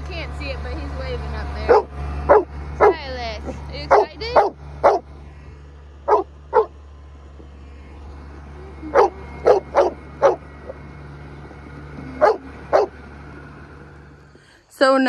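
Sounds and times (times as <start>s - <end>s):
steady low hum: 0.0s - 15.0s
dog barking: 1.7s - 3.0s, 3.9s - 5.1s, 6.0s - 6.8s, 8.9s - 10.4s, 12.2s - 13.0s.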